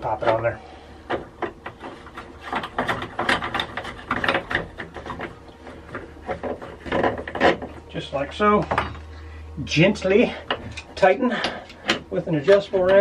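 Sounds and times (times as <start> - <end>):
plastic scraping and clicking: 1.1 - 7.8.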